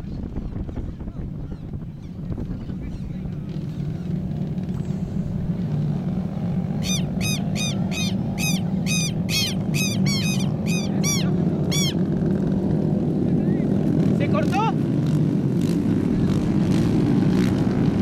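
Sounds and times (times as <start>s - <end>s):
racing kart engines: 0.1s - 18.0s
bird calling sharp notes: 6.6s - 12.1s.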